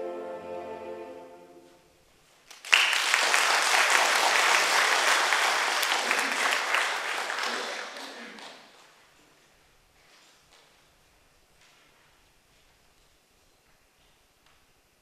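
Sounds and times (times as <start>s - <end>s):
audience applause: 2.5s - 9.0s.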